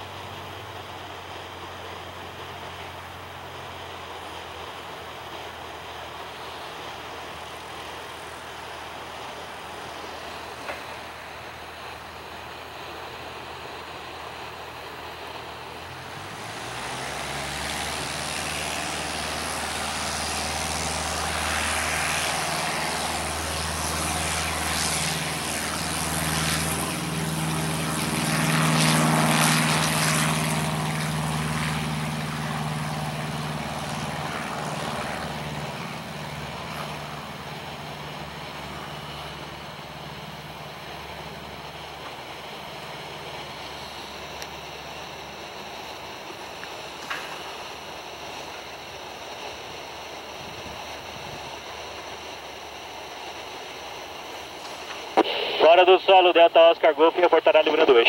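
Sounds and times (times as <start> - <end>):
small plane engine and propeller: 0.0 - 58.0.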